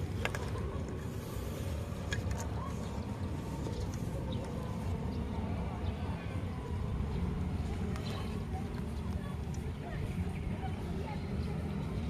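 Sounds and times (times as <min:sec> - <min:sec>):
low outdoor rumble: 0:00.0 - 0:12.0.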